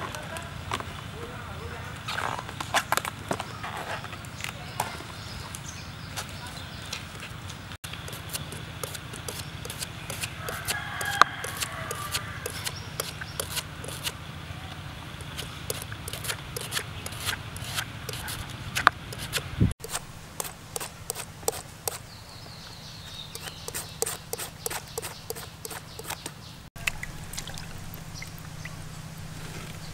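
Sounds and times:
knife slicing: 0:08.1 - 0:14.1, 0:15.3 - 0:22.0.

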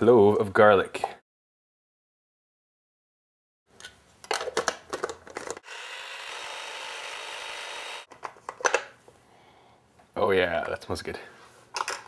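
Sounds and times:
electric food chopper running: 0:05.6 - 0:08.1.

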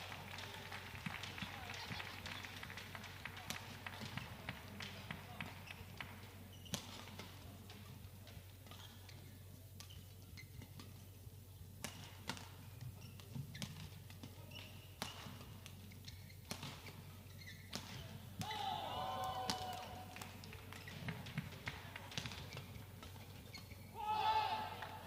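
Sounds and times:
faint hall hum: 0:00.0 - 0:25.0
racket hitting shuttlecock: 0:03.4 - 0:09.1, 0:11.8 - 0:25.0.

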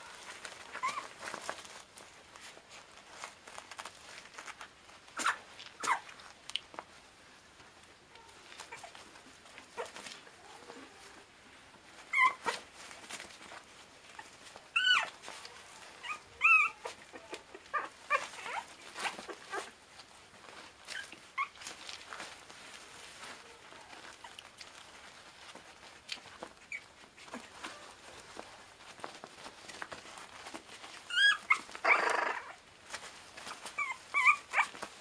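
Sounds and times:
small paws scuffling on bedding: 0:00.0 - 0:35.0
puppies squealing and yelping: 0:00.5 - 0:01.6, 0:05.1 - 0:06.2, 0:11.9 - 0:13.2, 0:14.0 - 0:19.8, 0:20.5 - 0:22.0, 0:25.3 - 0:35.0.

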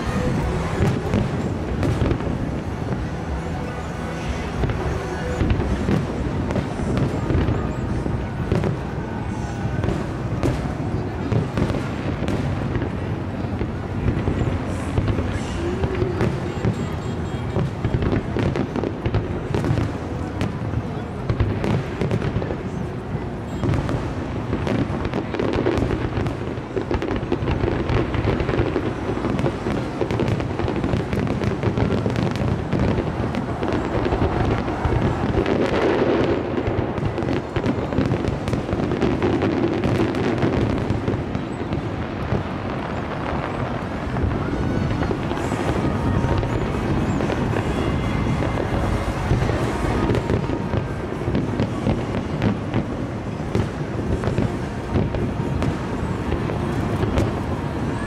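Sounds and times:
fireworks bangs and crackles: 0:00.0 - 0:58.0.

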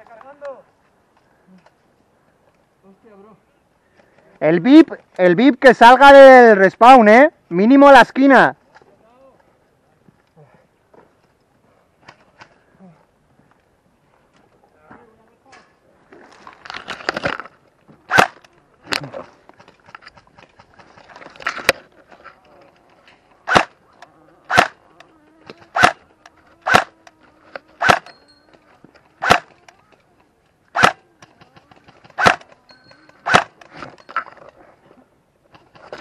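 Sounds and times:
airsoft rifle single shots: 0:18.1 - 0:18.4, 0:23.5 - 0:23.8, 0:24.5 - 0:24.8, 0:25.7 - 0:26.0, 0:26.6 - 0:26.9, 0:27.8 - 0:28.1, 0:29.2 - 0:29.5, 0:30.7 - 0:31.0, 0:32.2 - 0:32.5, 0:33.2 - 0:33.6.

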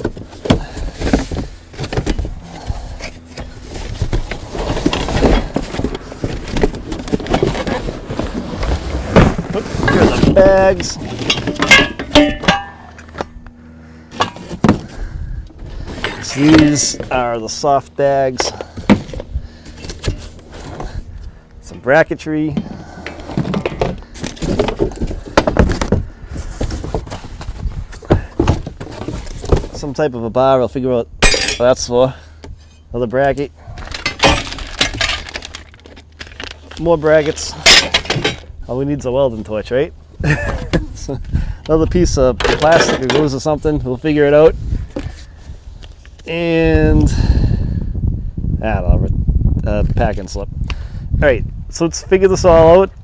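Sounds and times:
cardboard rustling: 0:00.0 - 0:11.6
parts knocking together: 0:09.1 - 0:13.4, 0:33.8 - 0:36.8, 0:37.6 - 0:38.5
metal bangs: 0:09.9 - 0:13.0
metal frame clattering: 0:09.9 - 0:13.0.

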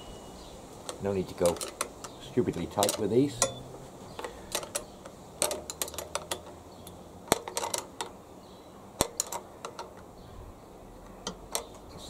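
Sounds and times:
spanner clicking against nut: 0:01.4 - 0:03.6.

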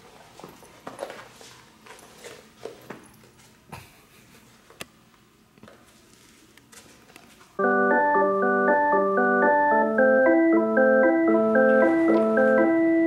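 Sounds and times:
keyboard playing repeated chords: 0:07.6 - 0:13.0.

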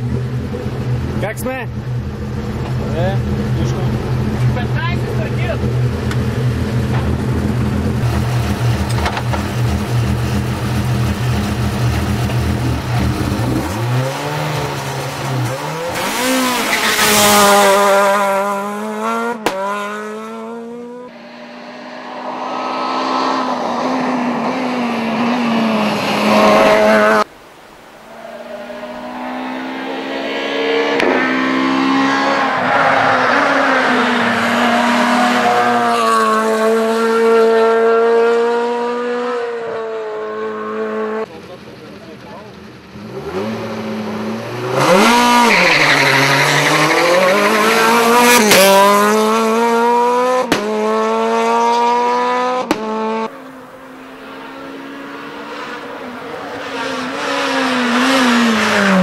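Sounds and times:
rally car engine revving: 0:00.0 - 0:27.3, 0:28.2 - 0:59.0
rally cars accelerating hard: 0:00.0 - 0:27.3, 0:28.1 - 0:41.6, 0:42.5 - 0:59.0.

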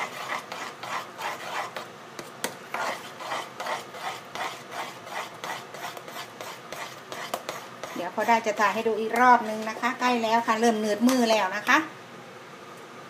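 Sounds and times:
spoon scraping paste in metal pot: 0:00.0 - 0:10.2.

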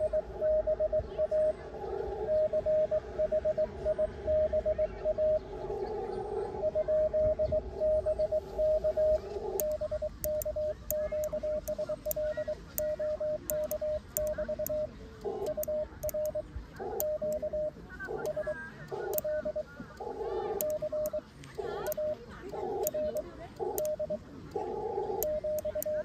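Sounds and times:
morse code beeping: 0:00.0 - 0:01.5, 0:02.3 - 0:05.4, 0:06.6 - 0:24.2, 0:25.0 - 0:26.0.

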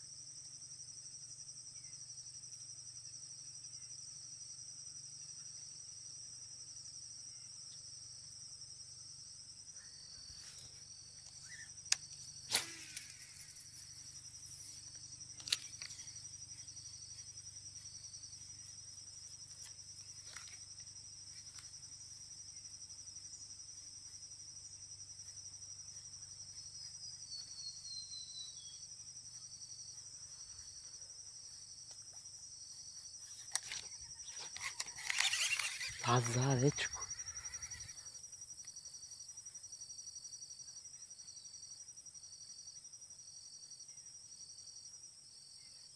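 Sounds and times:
high-pitched insect chorus: 0:00.0 - 0:45.9
sharp clicks: 0:11.2 - 0:14.0, 0:14.9 - 0:16.1, 0:33.2 - 0:37.9.

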